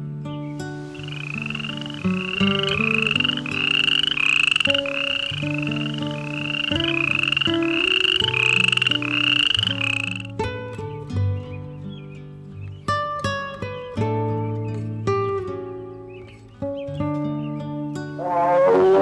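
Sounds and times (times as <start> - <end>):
plucked guitar music: 0.0 - 19.0
small animal buzzy calls: 0.9 - 10.3.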